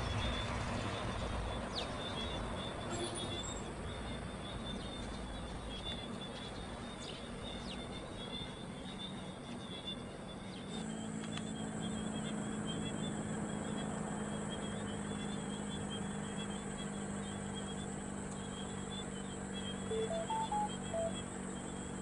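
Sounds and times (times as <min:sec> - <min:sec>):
distant aircraft noise: 0:00.0 - 0:22.0
insects and birds chirping: 0:00.0 - 0:22.0
jet engines humming: 0:03.6 - 0:22.0
thin high whine: 0:19.6 - 0:21.8.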